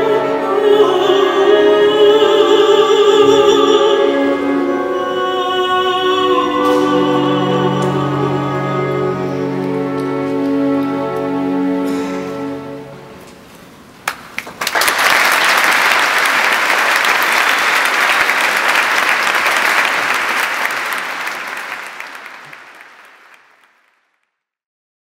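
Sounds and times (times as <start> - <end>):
audience applauding: 14.0 - 24.1.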